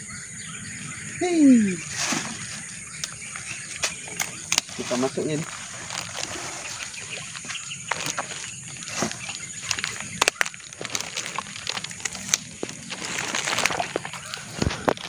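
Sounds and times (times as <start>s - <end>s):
plastic bag rustling: 1.8s - 15.0s.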